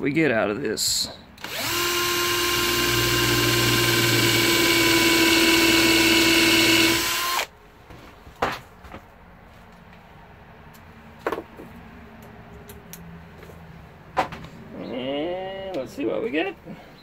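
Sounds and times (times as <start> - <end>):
drill motor whine: 1.4 - 7.5.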